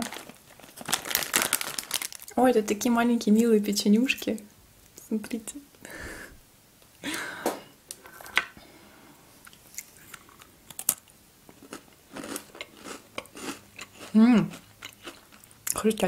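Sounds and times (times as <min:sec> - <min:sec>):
cookie being chewed crunchily: 0:09.8 - 0:16.0.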